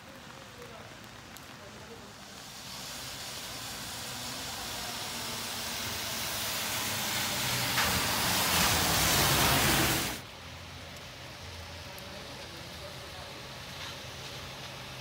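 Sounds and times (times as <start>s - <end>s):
tyres hissing on wet road: 0.0s - 15.0s
bus engine hum: 3.4s - 10.2s.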